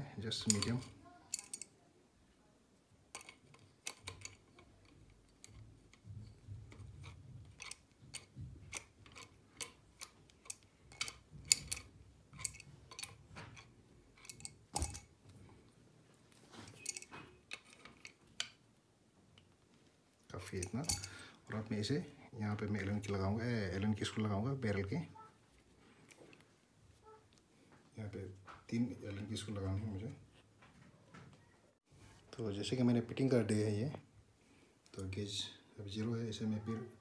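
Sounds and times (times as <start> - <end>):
soft handling rumble: 3.0 - 32.4.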